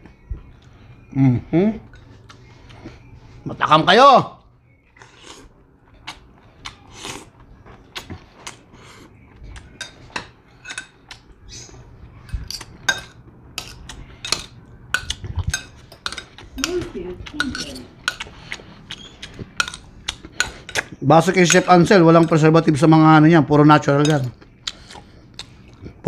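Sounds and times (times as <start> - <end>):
cutlery scraping on plate: 9.6 - 22.5.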